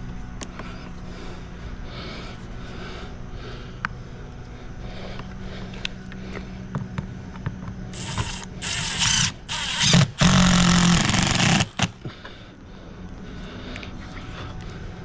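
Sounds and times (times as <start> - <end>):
power driver driving a screw: 8.0 - 11.9.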